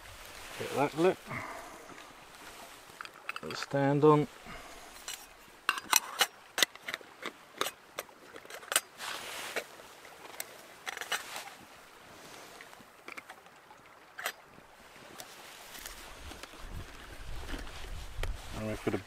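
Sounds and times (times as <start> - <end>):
short rustle: 0.0 - 5.5, 9.0 - 12.8.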